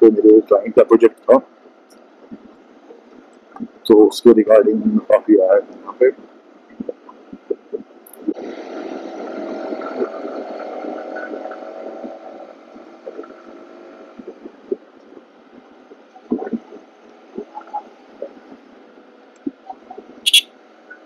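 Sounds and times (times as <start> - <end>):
motorcycle engine drone: 6.8 - 18.5.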